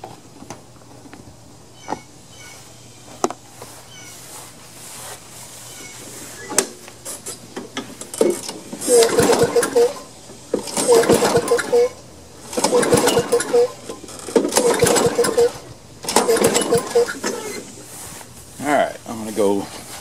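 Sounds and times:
mower engine pull-starter whirring: 6.3s - 18.0s.

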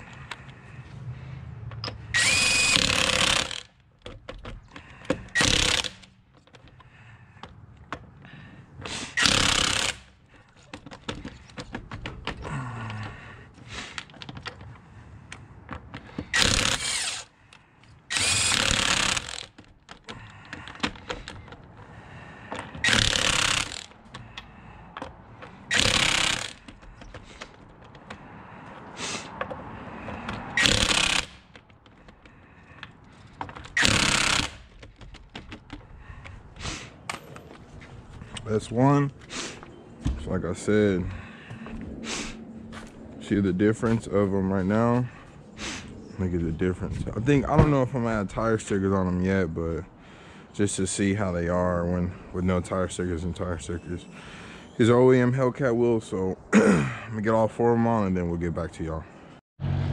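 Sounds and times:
power tool driving lug nuts: 1.8s - 6.8s, 8.8s - 10.2s, 15.8s - 17.3s, 18.1s - 21.6s, 22.5s - 24.4s, 25.4s - 28.2s, 29.4s - 32.2s, 33.4s - 35.9s.

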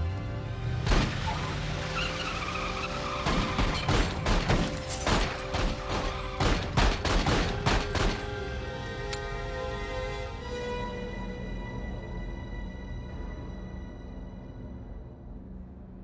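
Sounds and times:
film score music: 0.0s - 16.0s
car tyres squealing: 1.0s - 4.2s
handgun shots: 3.7s - 8.3s.

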